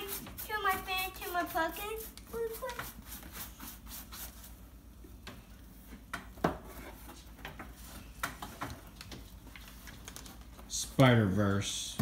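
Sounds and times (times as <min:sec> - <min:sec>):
paintbrush tapping and rubbing: 0:00.0 - 0:04.4.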